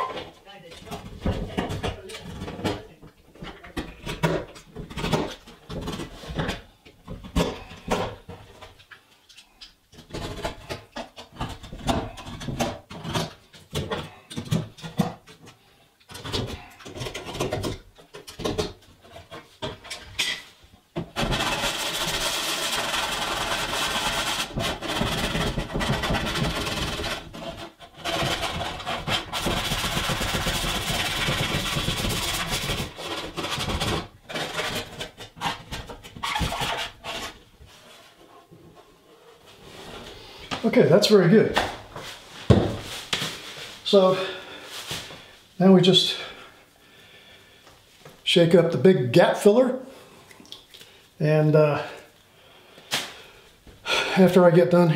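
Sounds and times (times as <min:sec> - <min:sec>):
sanding sponge rubbing on door: 0:21.4 - 0:25.3.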